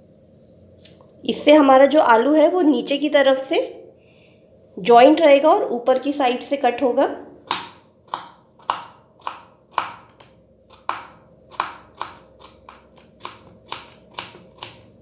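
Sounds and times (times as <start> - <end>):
knife slicing potato on board: 7.5 - 15.0.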